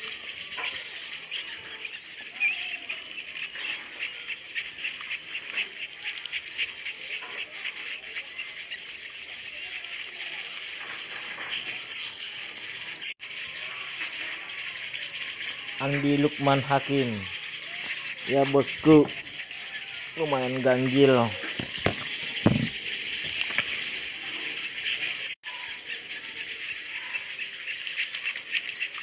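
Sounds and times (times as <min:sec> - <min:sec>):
birds twittering high chirps: 0:00.0 - 0:29.0
rapid clicking chatter: 0:00.0 - 0:29.0.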